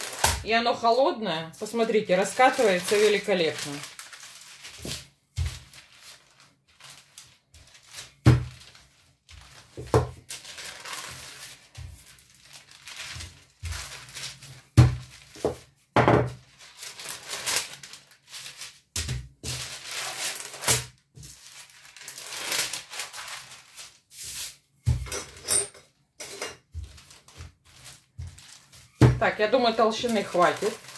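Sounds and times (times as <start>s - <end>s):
paper crinkling: 0.0s - 0.4s, 1.6s - 15.7s, 16.4s - 24.6s, 26.7s - 30.9s
rolling pin knocking on table: 16.0s - 16.4s.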